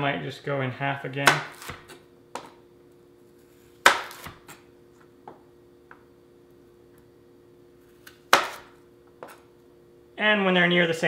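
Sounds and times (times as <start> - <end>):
knife chopping on cutting board: 1.3 - 2.5, 3.8 - 4.6, 8.0 - 9.4.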